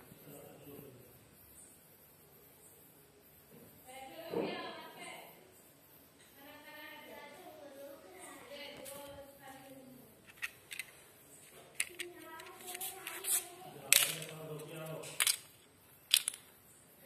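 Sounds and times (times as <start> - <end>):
plastic pieces clicking on tiles: 10.3 - 16.5.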